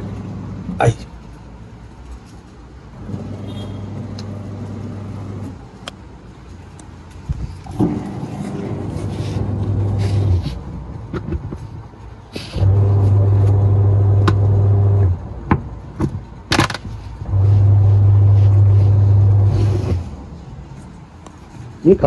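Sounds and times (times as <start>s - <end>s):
washing machine motor humming: 0.0s - 0.7s, 3.0s - 5.6s, 7.7s - 10.6s, 12.6s - 15.3s, 17.2s - 20.2s.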